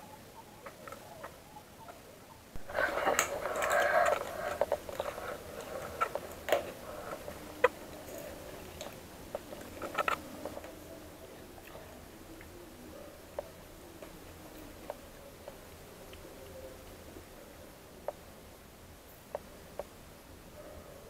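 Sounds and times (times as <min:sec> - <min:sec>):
clattering and scraping: 0:02.6 - 0:07.4.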